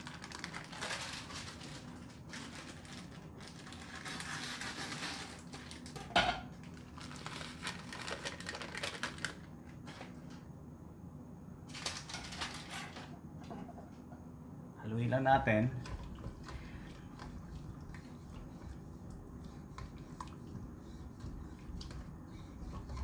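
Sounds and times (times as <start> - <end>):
foil sachet crinkling: 0.0 - 6.0, 6.6 - 10.1, 11.7 - 12.7.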